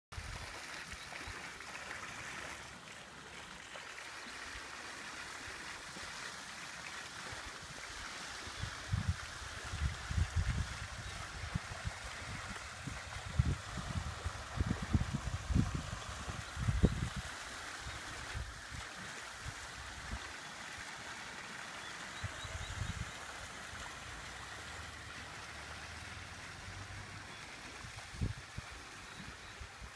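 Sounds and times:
fountain water splashing: 0:00.1 - 0:29.9
wind rumble on microphone: 0:08.6 - 0:17.3, 0:27.8 - 0:28.8.

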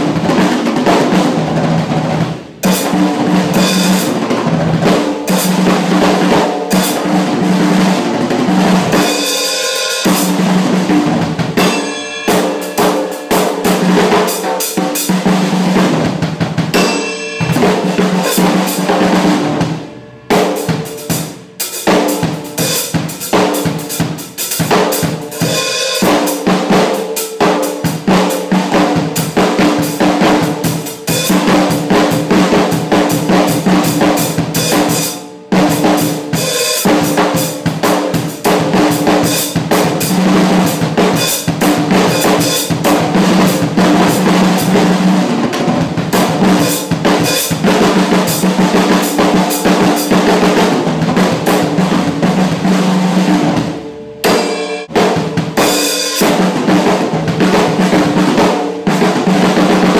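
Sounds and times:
acoustic drum kit groove: 0:00.0 - 0:59.9
drum rolls: 0:00.0 - 0:59.9.

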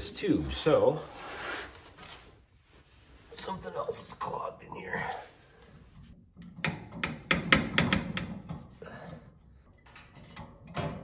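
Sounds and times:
sharp metal taps and clicks: 0:06.4 - 0:08.6.

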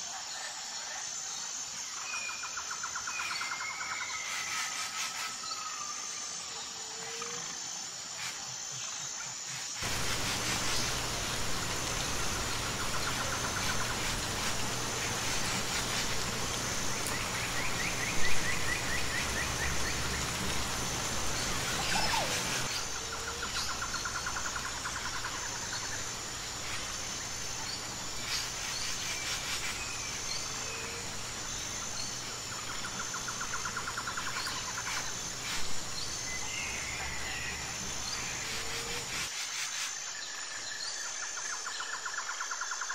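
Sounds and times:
insect chorus: 0:00.0 - 0:42.9
pulsing high insect note: 0:09.8 - 0:39.2
birds trilling and chirping: 0:09.8 - 0:39.3.

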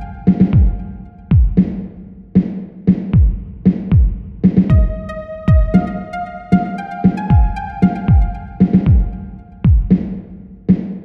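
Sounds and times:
deep falling kick drums: 0:00.0 - 0:01.8, 0:03.2 - 0:06.0, 0:07.2 - 0:10.2
steady bass line: 0:00.0 - 0:02.0, 0:04.1 - 0:10.4
synth note stepping upward: 0:04.7 - 0:09.6.

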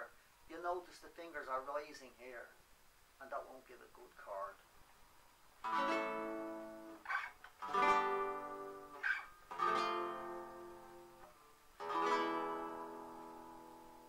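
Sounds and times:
guitar chord strummed: 0:05.6 - 0:14.0.

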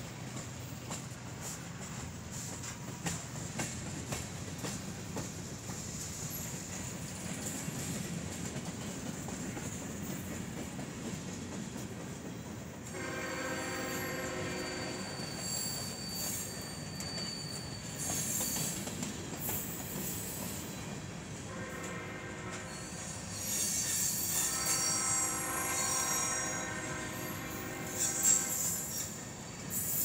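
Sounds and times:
steel wheels rumbling on rail: 0:00.0 - 0:30.0
distant locomotive horn: 0:12.9 - 0:15.2, 0:21.5 - 0:23.1, 0:24.4 - 0:28.9
high wheel squeal: 0:13.4 - 0:18.9, 0:22.5 - 0:30.0.

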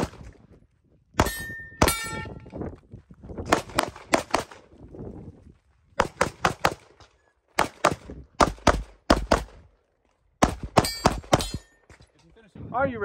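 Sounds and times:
pistol shots: 0:01.2 - 0:02.3, 0:03.5 - 0:04.6, 0:06.0 - 0:06.9, 0:07.6 - 0:09.6, 0:10.4 - 0:11.7
short metallic ring: 0:01.2 - 0:02.5, 0:10.8 - 0:11.9.

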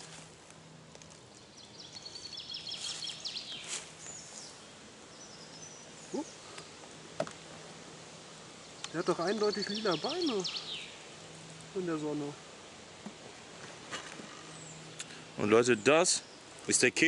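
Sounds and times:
dry leaves rustling: 0:00.0 - 0:04.9
woodland ambience: 0:00.0 - 0:17.0
songbird trilling: 0:01.4 - 0:06.6, 0:08.7 - 0:11.1.

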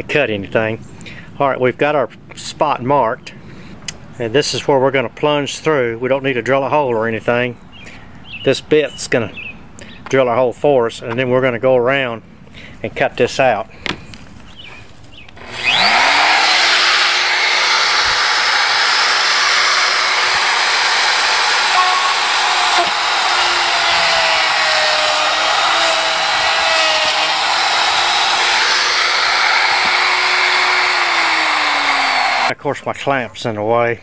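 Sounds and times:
plunge router cutting laminate: 0:15.4 - 0:32.5.

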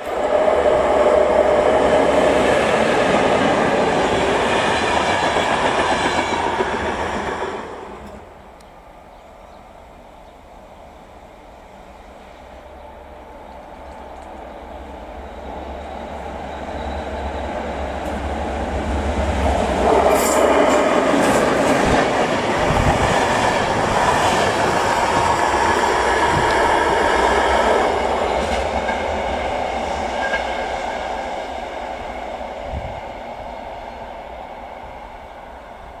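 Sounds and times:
train wheels clattering on rails: 0:01.2 - 0:08.2, 0:15.8 - 0:32.3.

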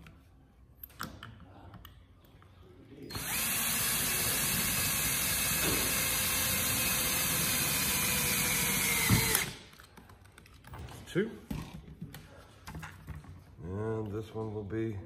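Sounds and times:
cordless drill boring into metal: 0:03.1 - 0:09.6.

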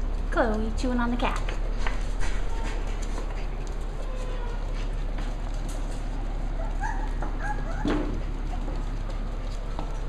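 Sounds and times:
faint scuffles: 0:01.8 - 0:06.0
puppy whimpering squeaks: 0:06.6 - 0:08.1.

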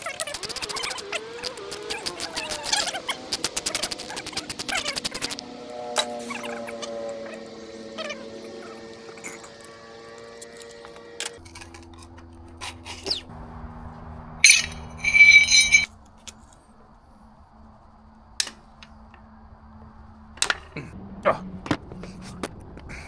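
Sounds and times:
loud metallic rattle: 0:14.4 - 0:15.9
metal tools clinking: 0:14.4 - 0:15.9.

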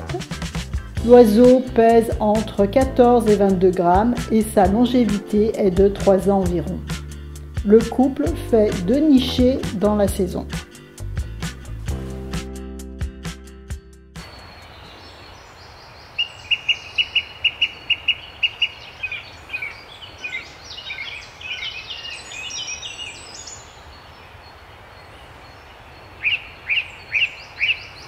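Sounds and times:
background hiss: 0:14.2 - 0:28.0
small bird singing: 0:14.2 - 0:28.0.

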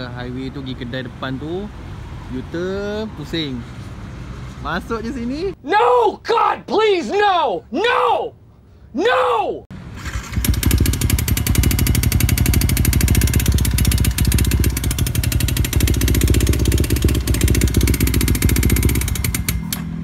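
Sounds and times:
engine clattering: 0:09.9 - 0:20.0.

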